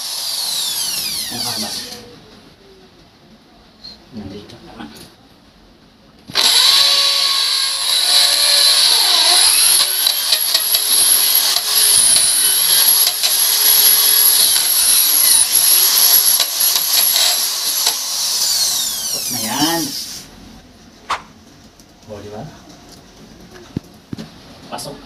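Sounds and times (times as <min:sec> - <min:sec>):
electric drill whining: 0:00.0 - 0:02.0, 0:06.3 - 0:20.3.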